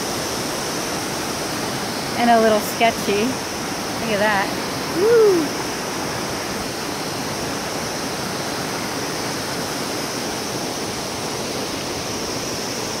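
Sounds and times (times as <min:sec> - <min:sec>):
river rushing: 0:00.0 - 0:13.0.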